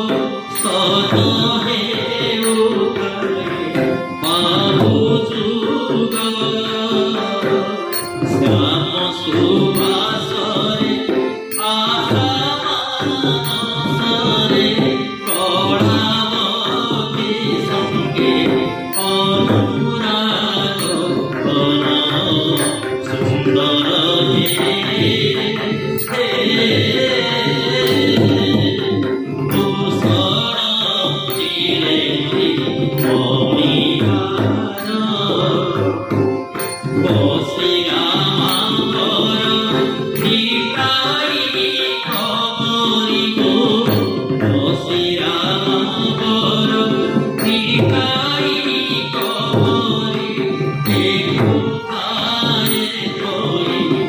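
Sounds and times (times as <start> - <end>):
hand-played barrel drum: 0.0 - 54.0
harmonium: 0.0 - 54.0
man singing: 0.0 - 54.0
thin bright ticks: 7.9 - 8.2, 38.5 - 38.8.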